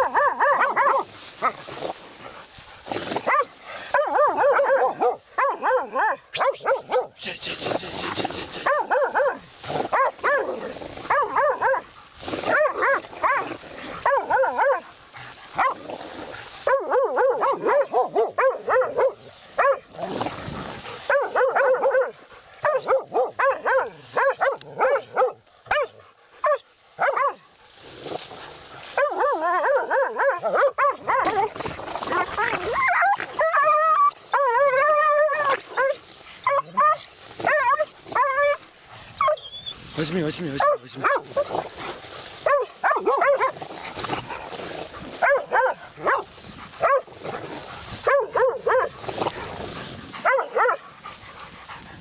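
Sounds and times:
dogs barking rapidly: 0.0s - 27.5s, 28.4s - 52.0s
dogs whining: 29.0s - 39.8s.

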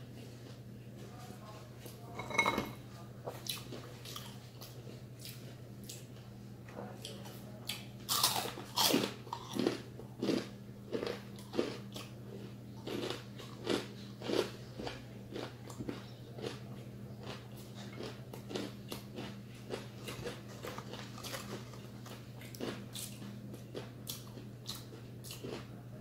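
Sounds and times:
steady low hum: 0.0s - 26.0s
crunching crispy chicken skin: 18.5s - 23.3s.

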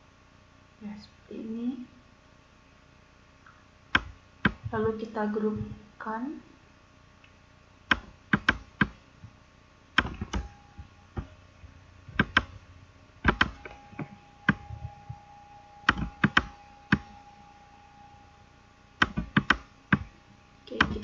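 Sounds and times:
faint steady tone: 9.4s - 21.0s.

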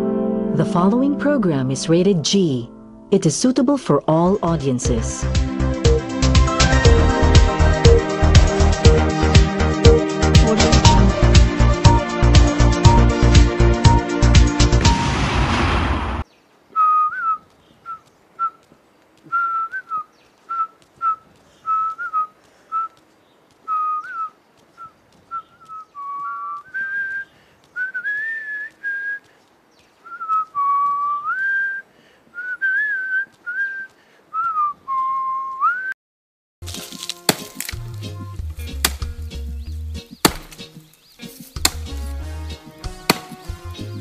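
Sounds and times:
person whistling a tune: 19.3s - 23.0s, 23.7s - 29.2s, 30.1s - 31.8s, 32.4s - 36.0s.

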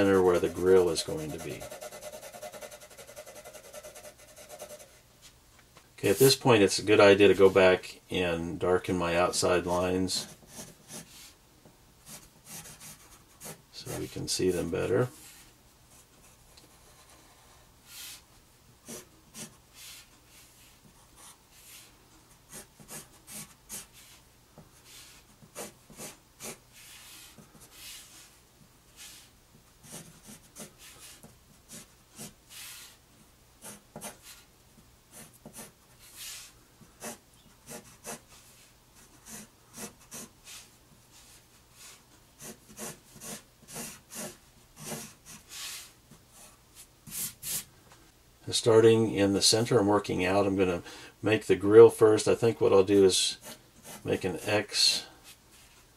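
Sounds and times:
pencil scratching on paper: 0.0s - 5.0s, 10.2s - 11.4s, 12.0s - 18.2s, 18.8s - 21.9s, 22.5s - 24.2s, 24.8s - 33.0s, 33.6s - 34.5s, 35.1s - 47.7s, 52.9s - 55.8s.

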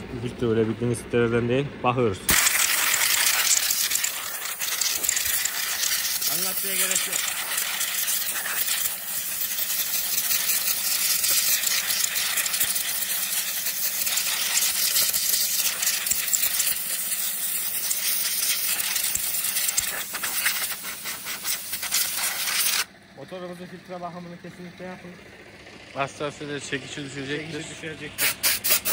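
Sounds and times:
compressed air hissing: 2.3s - 22.9s, 28.0s - 28.9s.

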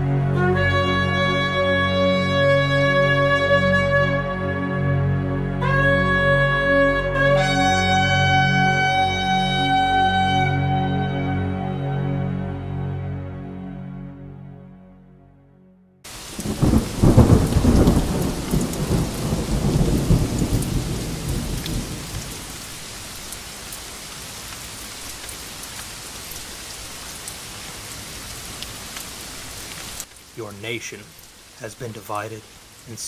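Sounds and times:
heavy rain: 0.0s - 11.9s, 16.1s - 33.0s
quiet music: 0.0s - 16.0s
rolling thunder: 16.2s - 22.7s.

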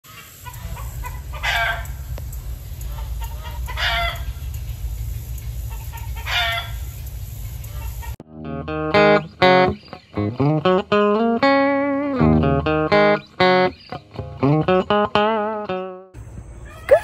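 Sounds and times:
poultry calling: 0.1s - 2.1s, 2.8s - 4.6s, 5.6s - 7.0s, 7.6s - 8.2s
low rumble: 0.6s - 8.1s.

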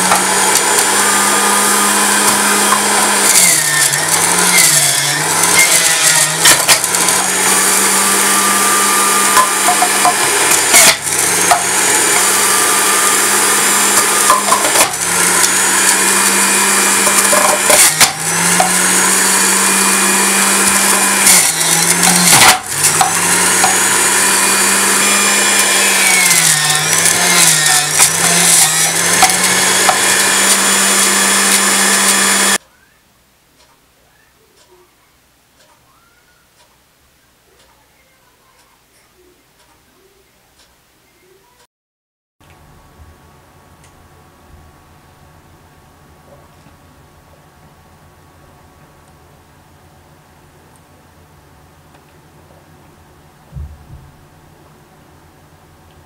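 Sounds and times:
carrots grinding: 0.0s - 32.6s
juicer motor hum: 0.0s - 32.9s.

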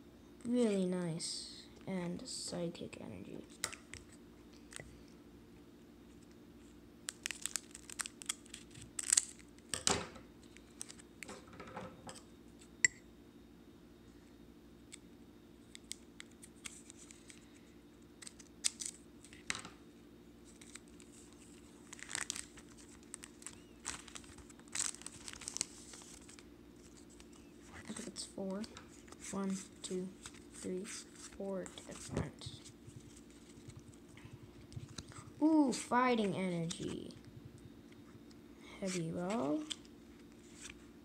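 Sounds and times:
faint low hum: 0.0s - 41.0s
foil wrapper crinkling and tearing: 7.1s - 9.8s, 10.5s - 11.1s, 18.2s - 19.5s, 20.4s - 28.0s.

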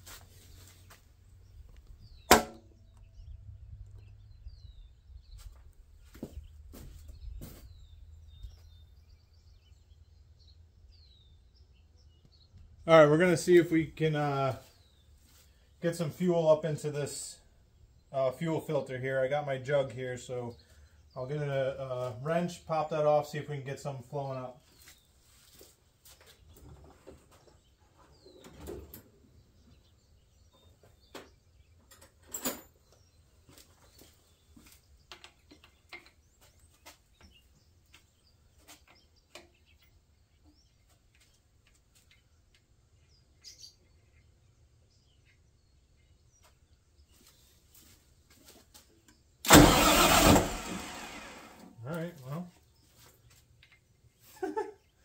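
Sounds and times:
sharp knock: 2.3s - 2.7s.

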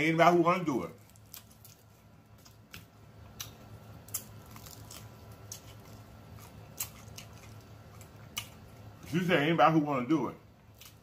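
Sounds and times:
chewing and mouth smacking: 1.0s - 9.1s.

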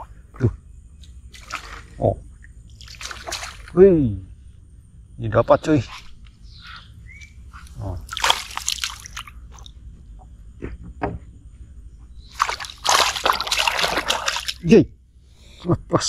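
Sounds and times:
fish thrashing and splashing: 1.3s - 2.0s, 2.7s - 3.8s, 8.0s - 9.7s, 12.3s - 14.7s.

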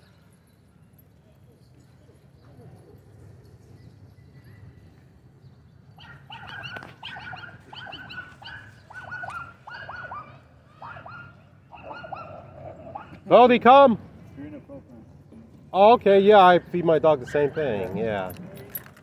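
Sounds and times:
dog yapping: 6.0s - 13.2s.

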